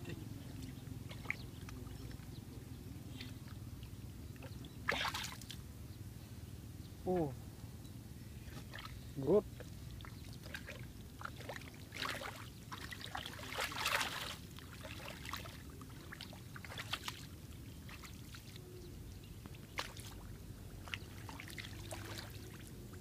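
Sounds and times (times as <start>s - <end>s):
feet splashing in muddy water: 1.1s - 1.9s, 4.8s - 5.5s, 8.5s - 9.0s, 9.9s - 18.6s, 19.5s - 23.0s.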